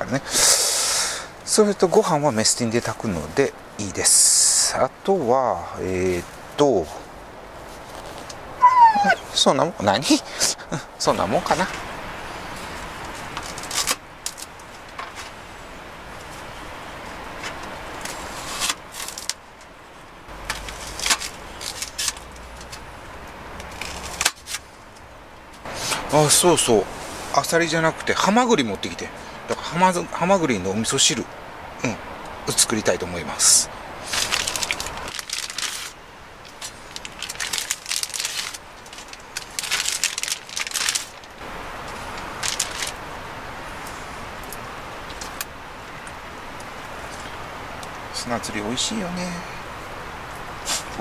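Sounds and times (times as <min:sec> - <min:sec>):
steady background hiss: 0:00.0 - 0:51.0
plastic bag crinkling: 0:34.0 - 0:41.4, 0:42.2 - 0:43.0.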